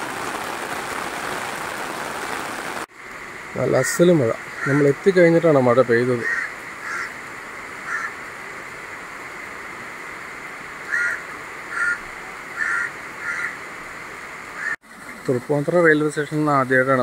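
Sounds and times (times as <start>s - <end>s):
heavy rain hissing: 0.0s - 17.0s
crow cawing: 4.5s - 5.0s, 6.2s - 7.2s, 7.8s - 8.2s, 10.9s - 12.0s, 12.6s - 13.6s, 14.6s - 14.8s.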